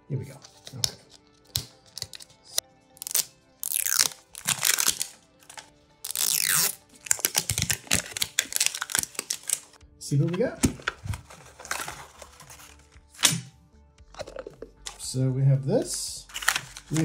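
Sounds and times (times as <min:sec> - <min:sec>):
faint background music: 0:00.0 - 0:17.0
plastic wrap crinkling and tearing: 0:03.0 - 0:09.8, 0:10.8 - 0:12.9, 0:16.3 - 0:17.0.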